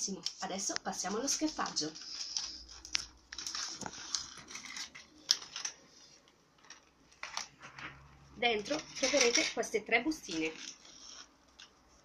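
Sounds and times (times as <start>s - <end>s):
packaging crinkling: 1.0s - 7.8s.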